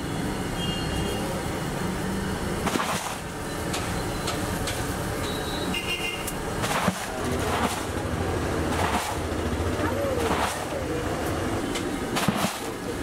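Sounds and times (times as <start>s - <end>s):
street traffic rumble: 0.0s - 13.0s
vehicle horn: 0.6s - 1.2s, 5.2s - 6.3s.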